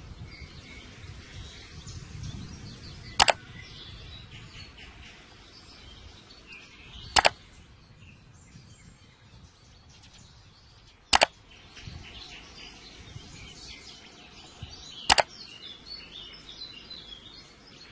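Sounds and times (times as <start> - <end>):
birds chirping: 0.0 - 17.9
sharp double crack: 7.2 - 7.4.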